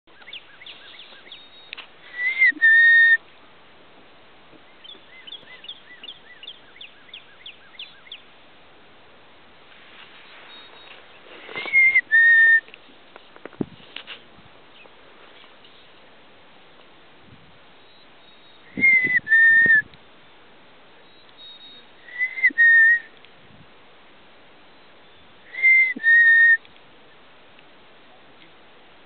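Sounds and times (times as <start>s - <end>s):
bird chirping: 0.1s - 3.1s, 4.6s - 8.3s, 10.2s - 12.6s, 17.8s - 20.4s, 21.0s - 23.0s
man whistling two-note call: 2.2s - 3.2s, 11.7s - 12.6s, 18.7s - 19.8s, 21.4s - 23.1s, 25.5s - 26.6s.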